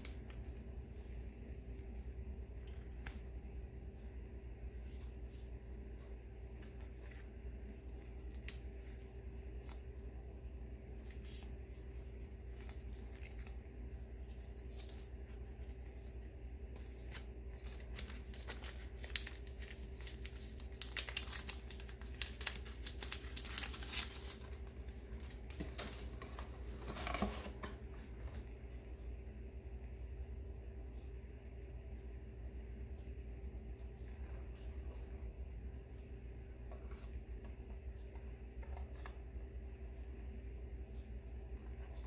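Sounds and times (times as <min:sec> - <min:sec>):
faint steady hum: 0:00.0 - 0:42.0
packaging rustling and crinkling: 0:11.0 - 0:27.8.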